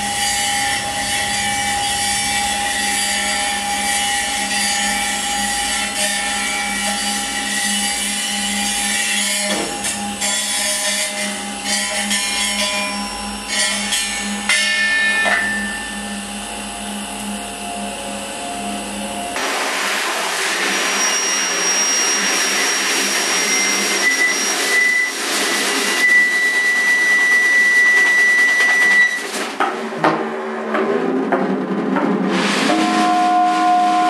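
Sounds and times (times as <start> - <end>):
downward-sliding squeal: 0.0 - 9.6, 20.5 - 29.4
experimental scraping music: 0.0 - 14.5.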